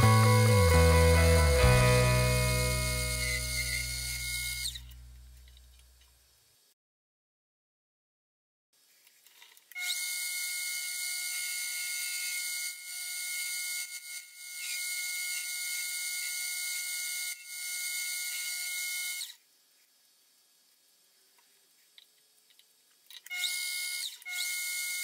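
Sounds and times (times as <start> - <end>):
lathe whining: 0.0 - 4.8.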